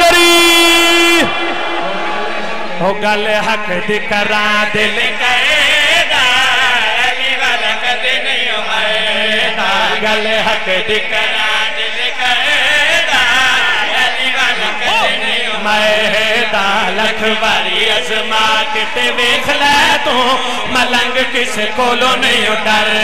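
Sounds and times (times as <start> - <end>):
men singing through microphones: 2.8 - 23.0.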